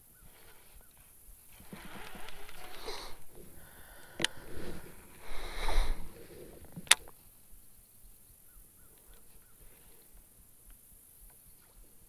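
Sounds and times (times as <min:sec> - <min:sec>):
deer snorting: 0:01.6 - 0:07.0
sharp clicks: 0:04.0 - 0:04.4, 0:06.7 - 0:07.2.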